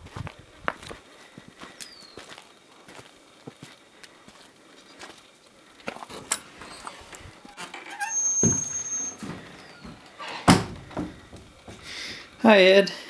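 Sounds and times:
screen door hinges squeaking: 6.2s - 11.6s
screen door banging shut: 6.6s - 11.9s.

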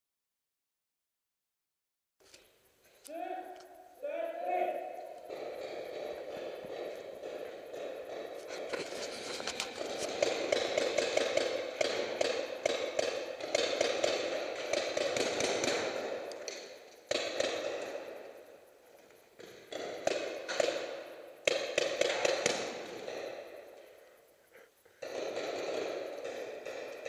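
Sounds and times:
paintball impacts: 4.6s - 18.4s, 19.4s - 23.8s, 25.0s - 27.0s
rapid paintball marker fire: 4.7s - 24.1s, 25.0s - 27.0s.

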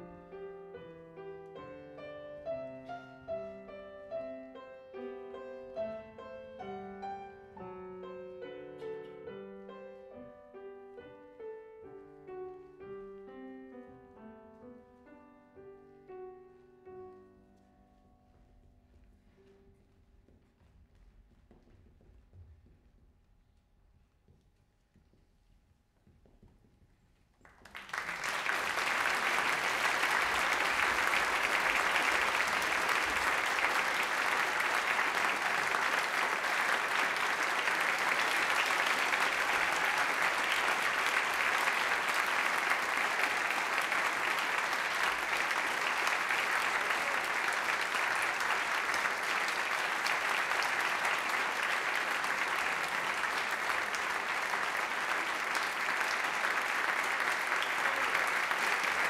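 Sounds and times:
audience applauding: 27.4s - 59.0s.

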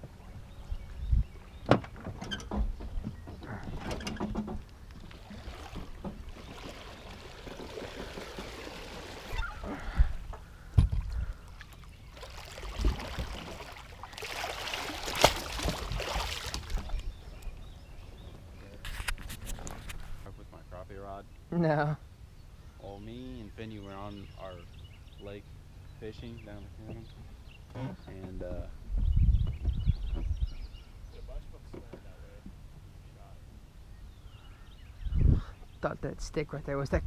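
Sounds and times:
fish splashing at the surface: 5.2s - 9.6s, 11.5s - 17.0s.

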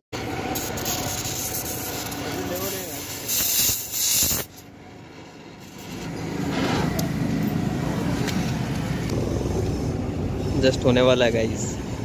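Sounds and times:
vehicle engine running: 4.5s - 12.0s.

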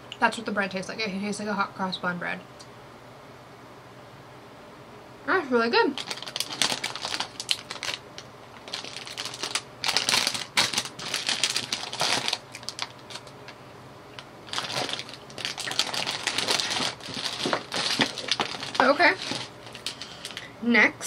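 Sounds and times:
plastic wrapper crinkling: 5.9s - 13.6s, 14.2s - 20.5s.

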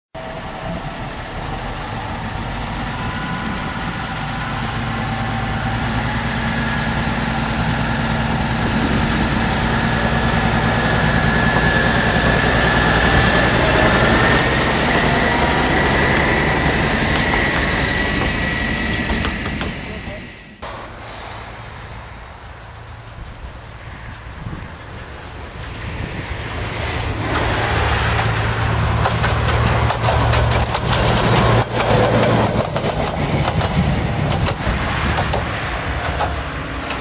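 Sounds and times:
high rising whine: 0.2s - 22.8s
locomotive engine drone: 0.2s - 37.0s.

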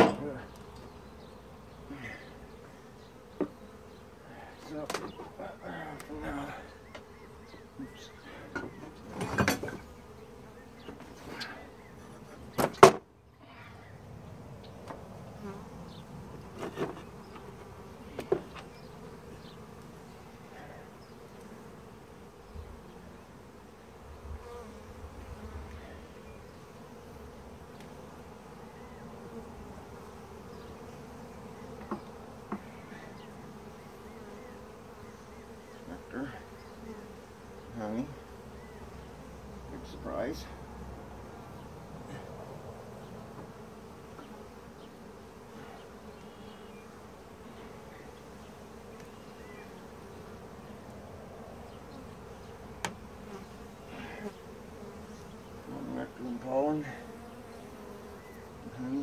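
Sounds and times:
hive tool knocking wooden frames: 0.0s - 0.3s, 3.3s - 3.6s, 4.8s - 5.4s, 7.8s - 9.9s, 12.5s - 13.1s, 16.4s - 18.8s, 31.8s - 32.9s, 52.8s - 53.1s
honey bees buzzing: 0.0s - 59.0s.

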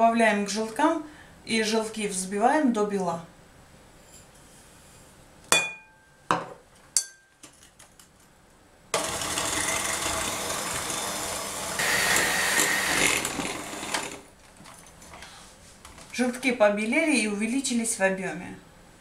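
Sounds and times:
glass clinking: 5.5s - 6.4s, 7.0s - 7.4s
electric hand mixer whirring: 9.0s - 14.3s.

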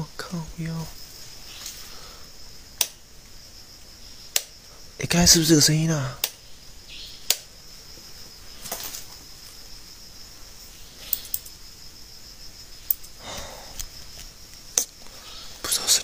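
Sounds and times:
crickets trilling: 0.0s - 16.0s
wall switch clicks: 6.2s - 6.4s.

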